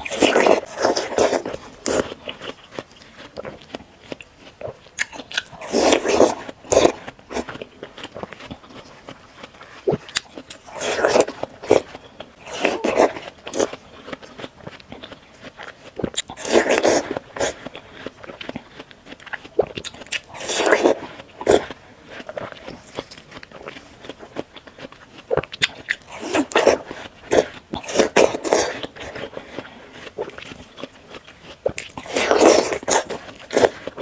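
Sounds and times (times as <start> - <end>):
biting into watermelon: 0.0 - 34.0
wet crunchy chewing: 0.0 - 34.0.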